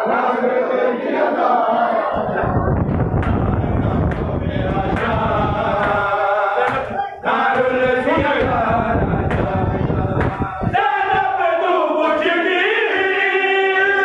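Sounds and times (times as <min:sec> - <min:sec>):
men chanting in unison: 0:00.0 - 0:14.0
chest-beating slaps: 0:05.8 - 0:08.7, 0:09.3 - 0:10.5.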